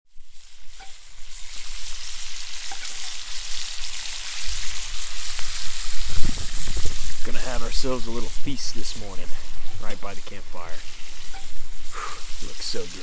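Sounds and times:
bacon sizzling in oil: 0:00.1 - 0:13.0.

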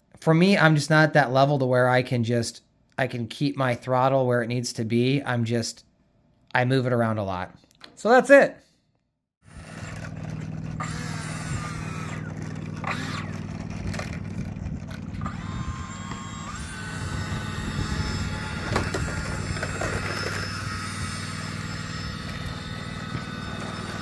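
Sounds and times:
low mechanical hum: 0:09.5 - 0:24.0.

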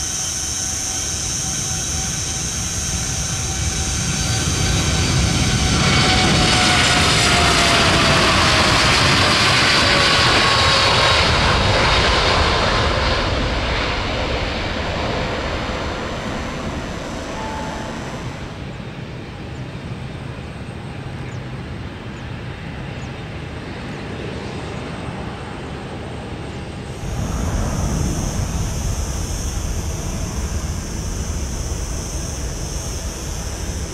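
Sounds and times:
jet engines at takeoff: 0:00.0 - 0:33.9
rush of noise: 0:26.9 - 0:33.9.

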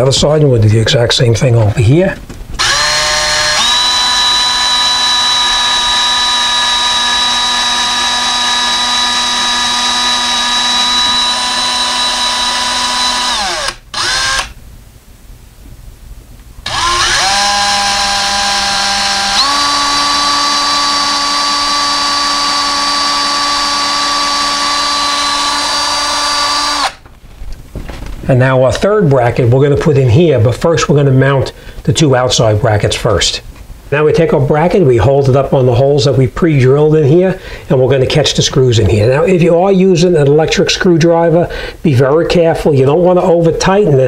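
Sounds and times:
power drill motor whine: 0:02.6 - 0:14.6, 0:16.7 - 0:27.0.

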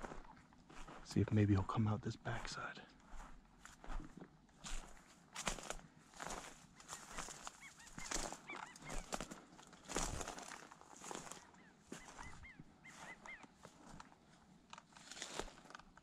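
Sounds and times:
footsteps crunching through dry brush: 0:00.0 - 0:01.3, 0:02.3 - 0:16.0
bird chirping: 0:06.8 - 0:09.2, 0:11.4 - 0:13.6.

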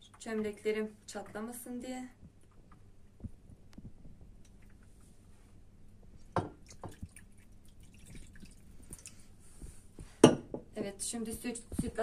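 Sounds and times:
water trickling onto metal tray: 0:06.6 - 0:09.2.

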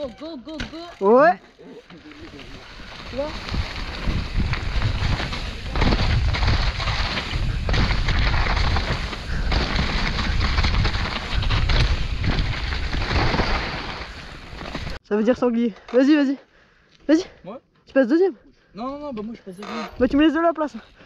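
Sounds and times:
bike knocks and rattles: 0:00.0 - 0:01.0, 0:03.0 - 0:15.0
mountain bike rumbling over rough trail: 0:00.0 - 0:15.0.

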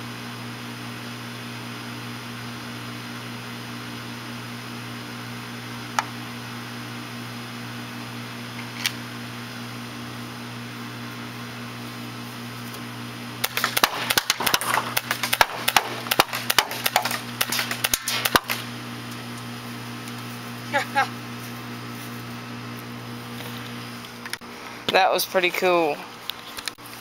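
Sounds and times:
air-conditioner condenser humming: 0:00.0 - 0:27.0
airsoft pistol sharp pops: 0:13.4 - 0:18.6.

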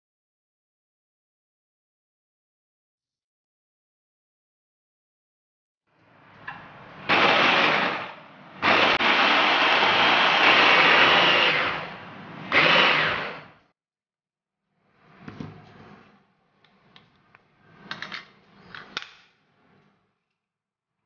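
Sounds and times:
blender motor grinding food: 0:07.1 - 0:13.6.

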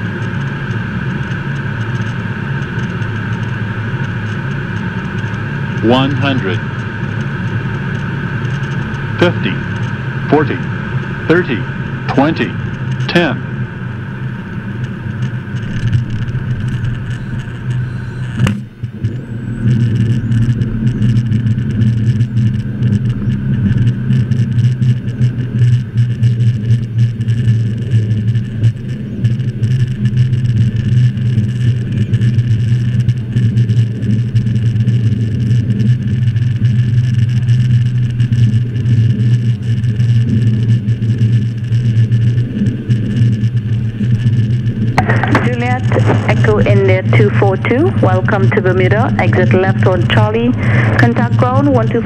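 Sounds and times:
jet engines in cockpit: 0:00.0 - 0:52.0
wheels rolling on runway: 0:13.7 - 0:52.0.

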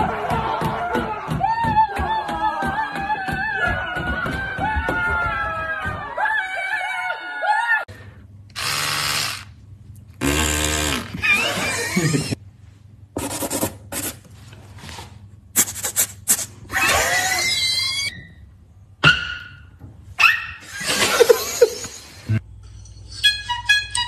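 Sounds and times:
beatboxing mouth sound effects: 0:13.2 - 0:14.2, 0:15.6 - 0:16.6.

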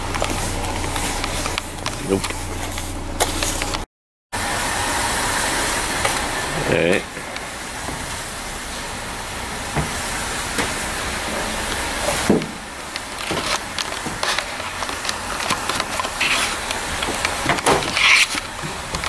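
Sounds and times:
clicks and knocks of junk: 0:12.1 - 0:19.0.

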